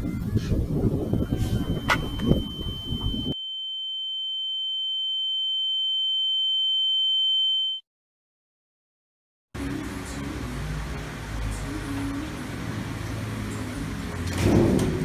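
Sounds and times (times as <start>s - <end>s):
high-pitched ringing tone: 1.0s - 7.8s
outdoor background noise: 9.6s - 15.0s.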